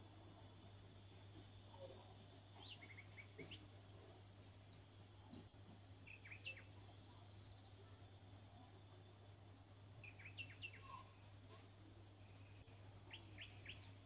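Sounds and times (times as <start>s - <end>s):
faint high chirps: 1.4s - 3.8s, 6.0s - 9.2s, 10.0s - 14.0s.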